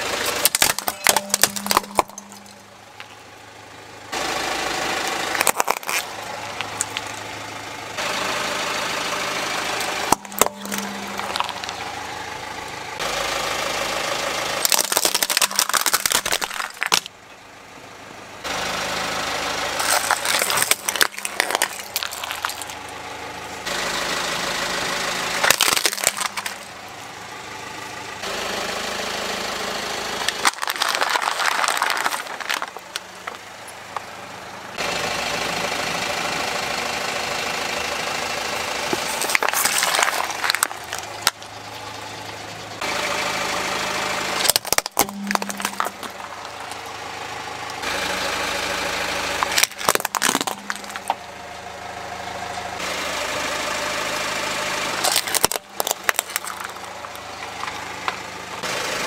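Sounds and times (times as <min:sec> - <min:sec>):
car engine idling: 0:00.0 - 0:59.0
plastic cracking and snapping: 0:00.3 - 0:02.5, 0:05.3 - 0:06.1, 0:14.6 - 0:17.1, 0:19.8 - 0:22.8, 0:25.4 - 0:26.7, 0:30.3 - 0:33.0, 0:38.9 - 0:41.4, 0:44.4 - 0:46.2, 0:49.4 - 0:51.2, 0:55.1 - 0:56.9.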